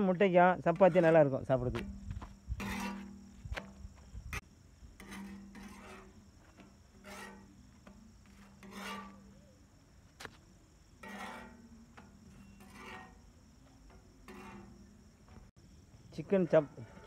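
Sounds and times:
faint rasping rubs on a griddle: 2.6s - 3.2s, 5.0s - 6.3s, 6.9s - 9.5s, 11.0s - 13.4s, 14.2s - 14.9s.

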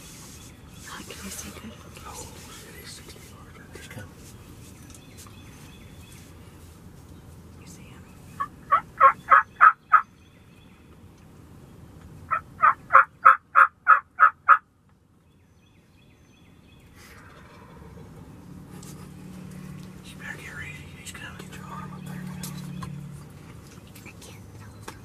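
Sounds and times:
turkey yelping: 8.4s - 10.1s, 12.3s - 14.6s.

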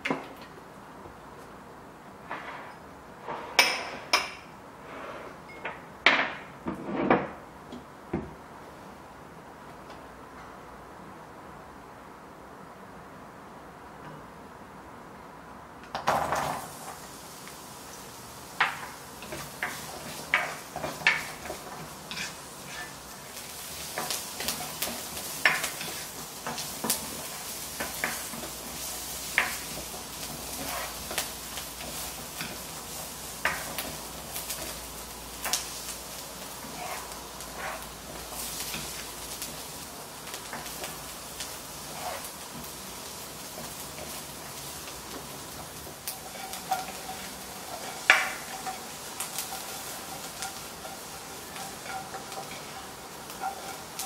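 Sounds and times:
garlic sizzling in a wok: 16.0s - 54.0s
spatula scraping a pan: 18.6s - 34.0s, 36.6s - 39.2s, 41.7s - 42.8s, 46.1s - 54.0s.

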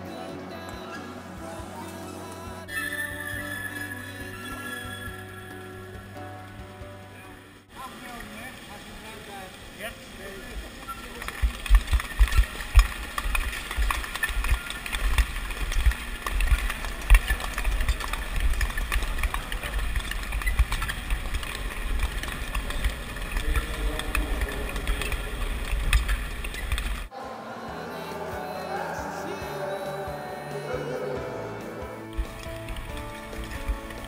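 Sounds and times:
clap skates clicking: 11.2s - 27.1s, 32.0s - 34.0s.

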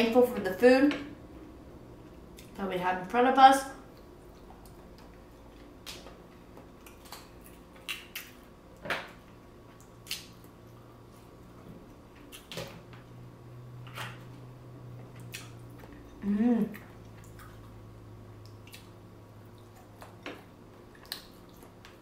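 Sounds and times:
wet squishes: 9.8s - 10.6s, 20.9s - 22.0s.

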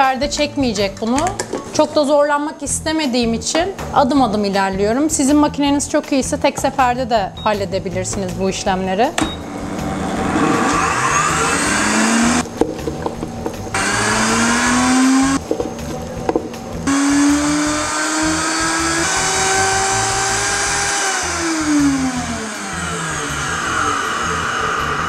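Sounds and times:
blender motor grinding: 9.4s - 12.5s, 13.7s - 15.4s, 16.9s - 25.0s.

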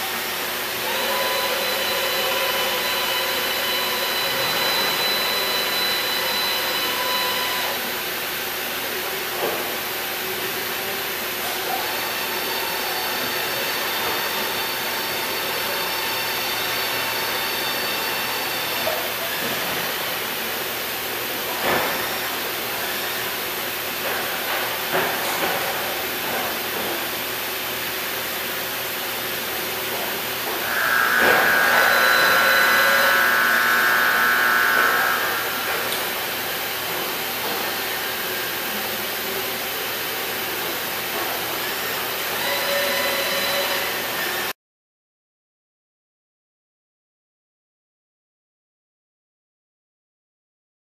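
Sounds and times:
high machine whine: 0.0s - 44.5s
boring mill hiss and hum: 30.5s - 37.2s.

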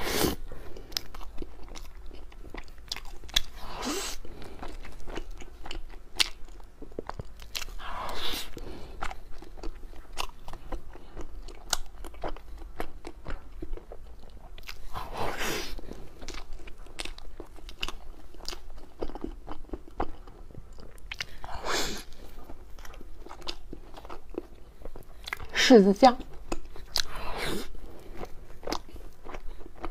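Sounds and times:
wet sticky chewing: 0.6s - 25.6s, 26.2s - 29.9s.

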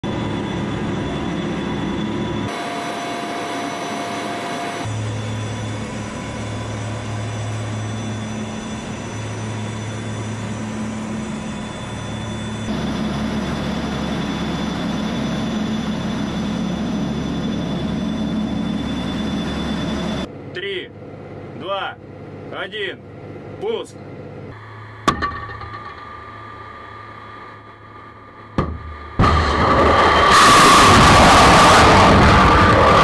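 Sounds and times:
high machinery whine: 0.0s - 33.0s
machinery humming: 0.0s - 33.0s.

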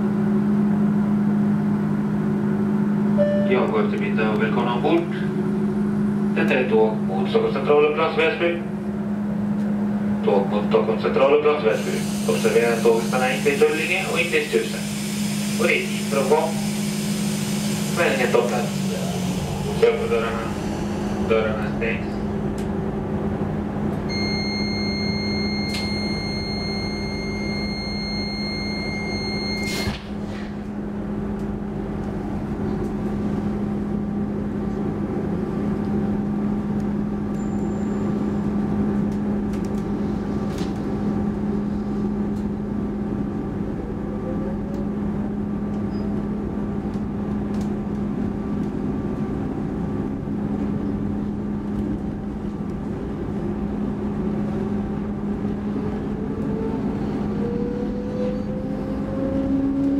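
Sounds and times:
train electric hum and rolling: 0.0s - 59.9s
high two-tone warning signal: 3.2s - 3.7s, 24.1s - 29.9s, 37.4s - 38.6s
train doors shutting clunk: 25.6s - 26.2s, 29.5s - 30.6s.

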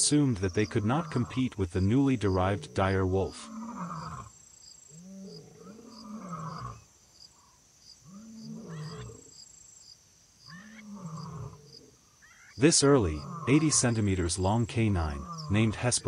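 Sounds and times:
animal moaning growls: 2.3s - 4.3s, 5.0s - 6.8s, 8.1s - 9.3s, 10.8s - 11.7s, 13.0s - 13.8s, 15.0s - 15.8s.

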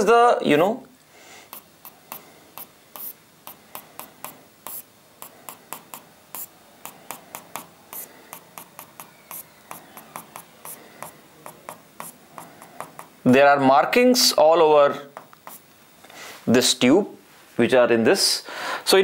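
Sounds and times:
stylus tapping on screen: 1.5s - 13.2s, 15.1s - 15.6s.

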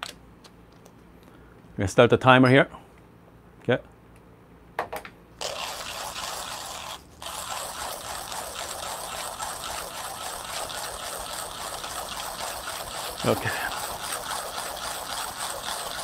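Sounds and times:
hand coffee grinder grinding beans: 5.4s - 16.0s.

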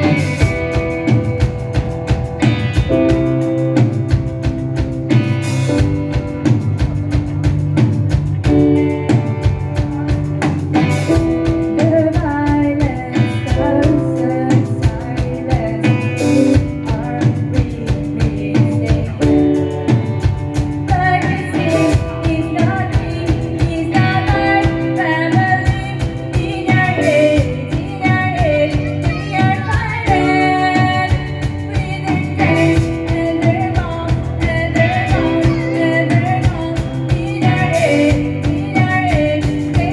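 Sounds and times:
live rock band playing: 0.0s - 39.9s
person singing: 10.9s - 19.8s, 20.9s - 39.9s.

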